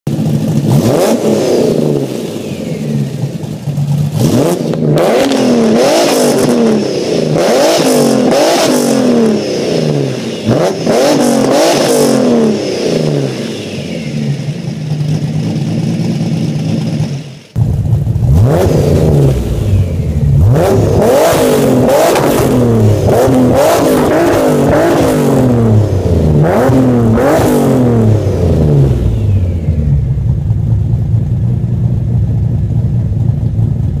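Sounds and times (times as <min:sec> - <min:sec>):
car engine revving and idling: 0:00.1 - 0:34.0.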